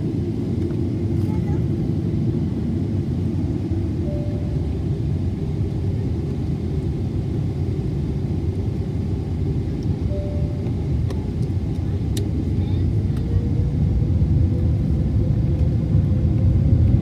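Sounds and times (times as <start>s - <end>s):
aircraft cabin rumble: 0.0s - 17.0s
faint short tone: 4.0s - 4.7s, 10.1s - 10.7s.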